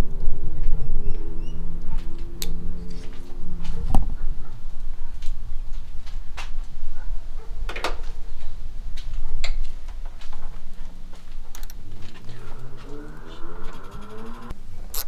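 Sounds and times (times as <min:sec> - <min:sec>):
steady low rumble: 0:11.5 - 0:14.5.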